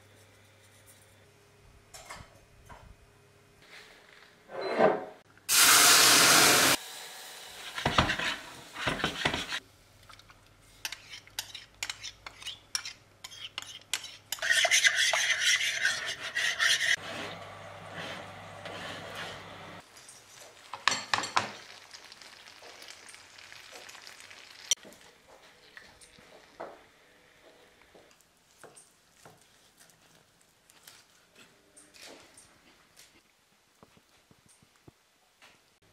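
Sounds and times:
sizzling hot pan: 0:05.5 - 0:09.6, 0:18.5 - 0:25.0.

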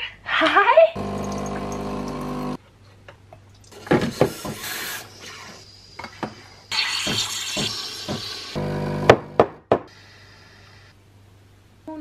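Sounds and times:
machine hum: 0:01.0 - 0:02.6, 0:08.6 - 0:09.4
milk pouring into metal jug: 0:01.0 - 0:02.6
steam wand hissing: 0:04.3 - 0:08.6.

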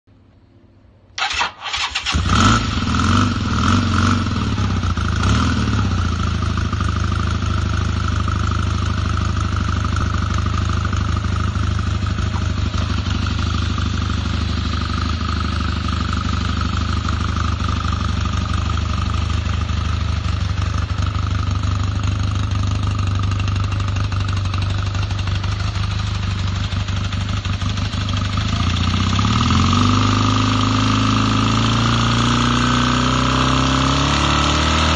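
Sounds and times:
electric starter cranking: 0:01.2 - 0:02.3
engine revving: 0:01.2 - 0:06.9, 0:27.5 - 0:34.9
motorcycle engine idling: 0:04.3 - 0:31.2.

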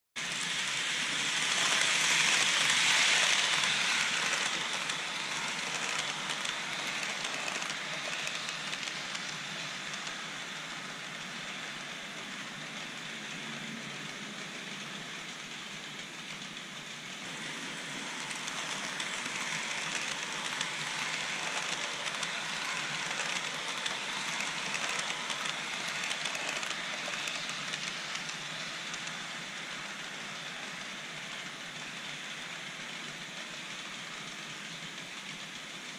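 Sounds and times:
model train wheels rattling on track: 0:00.2 - 0:35.9.

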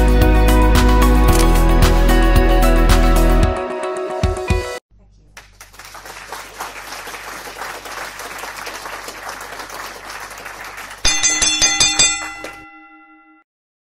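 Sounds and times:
applause: 0:05.3 - 0:11.6
bright chime strikes: 0:11.1 - 0:13.4.

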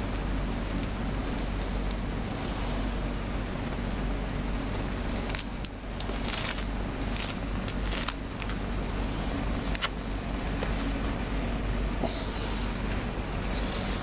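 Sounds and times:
low rumble and hum: 0:00.0 - 0:14.0
crisp rustles and clicks: 0:05.1 - 0:08.6.

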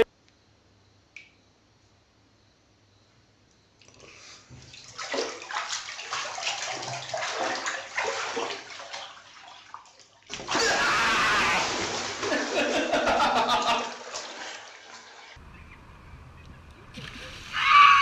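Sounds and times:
water rushing into bathtub: 0:04.7 - 0:15.3.

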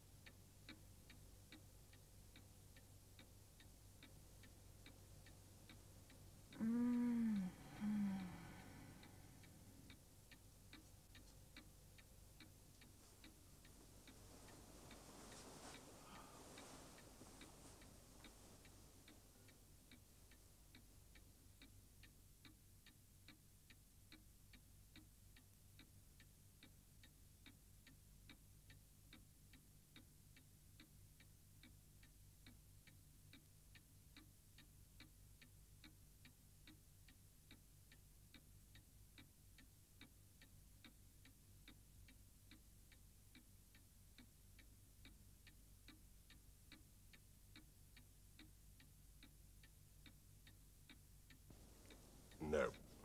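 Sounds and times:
soft rustle: 0:00.0 - 0:22.6, 0:50.9 - 0:53.0
clock ticking: 0:00.0 - 0:53.0.

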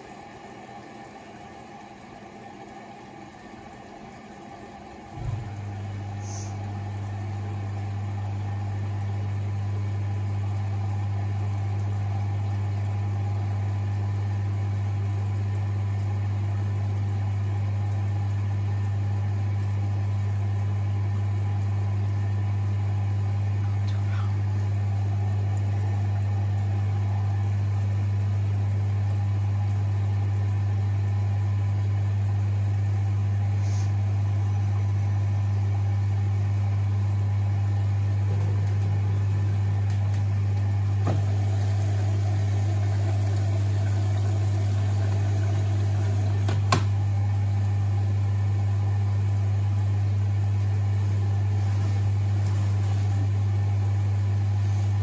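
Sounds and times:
washing machine humming: 0:00.0 - 0:55.0
running water: 0:38.4 - 0:47.2.

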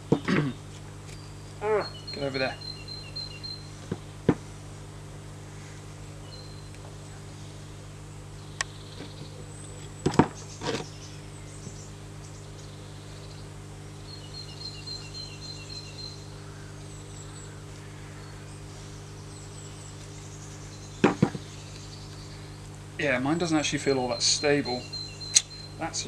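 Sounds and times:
low steady hum: 0:00.0 - 0:26.0
sharp wooden knocks: 0:21.0 - 0:21.4.

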